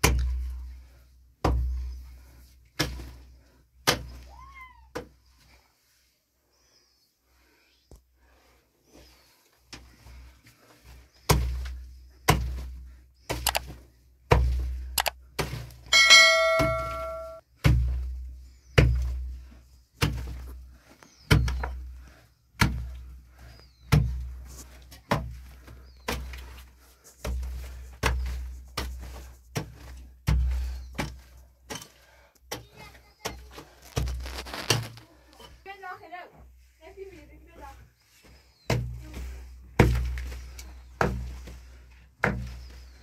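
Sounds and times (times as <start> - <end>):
metallic ring of blade on stone: 15.9 - 17.4.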